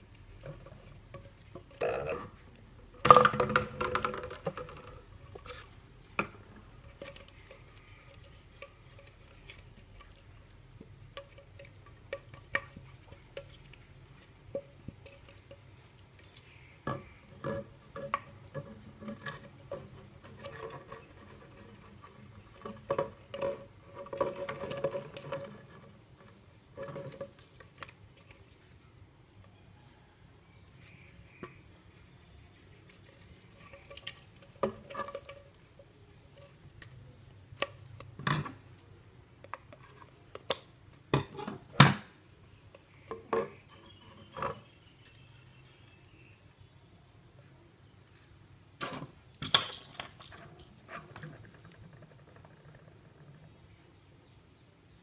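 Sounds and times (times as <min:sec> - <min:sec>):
clicks and taps of plastic bottles: 0:03.0 - 0:05.1.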